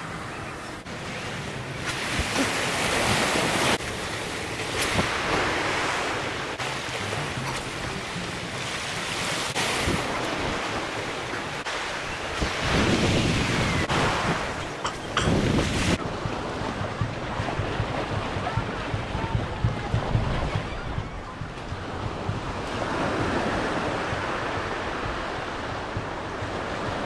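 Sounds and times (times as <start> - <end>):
wind rumbling on microphone: 12.1 - 27.0.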